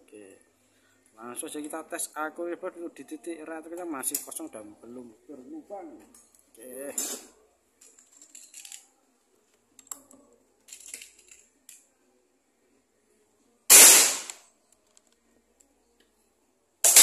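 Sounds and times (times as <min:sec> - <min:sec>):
air rifle shot: 0:13.7 - 0:14.4.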